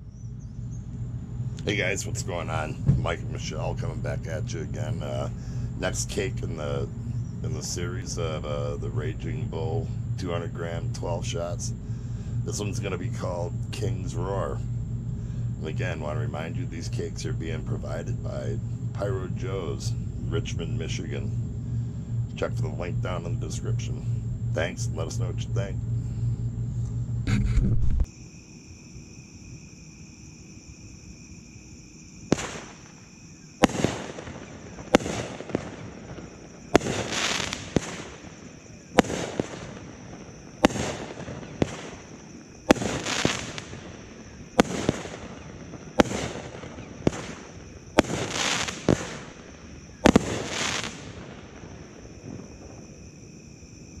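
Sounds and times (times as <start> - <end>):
firework shots and bursts: 32.2 - 53.0.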